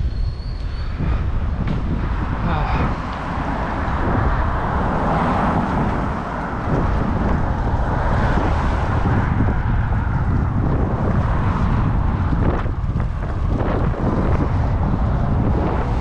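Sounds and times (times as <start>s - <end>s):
wind noise on microphone: 0.0s - 16.0s.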